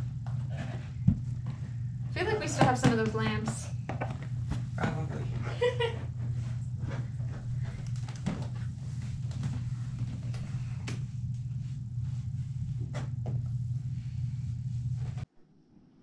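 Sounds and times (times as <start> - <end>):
steady low hum: 0.0 - 15.3.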